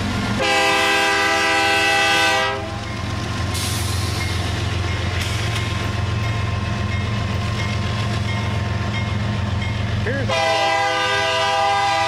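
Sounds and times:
diesel locomotives rumbling: 0.0s - 12.0s
train air horn blast: 0.4s - 2.7s, 10.3s - 12.0s.

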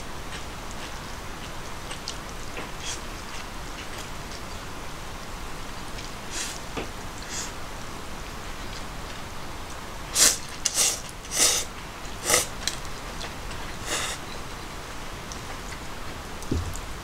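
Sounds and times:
person slurping noodles: 10.2s - 12.6s, 13.8s - 14.2s.

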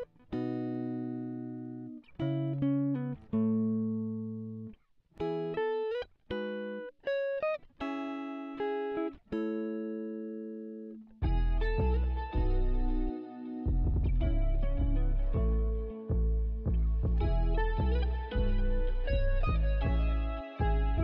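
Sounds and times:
clean electric guitar notes: 11.2s - 21.0s.

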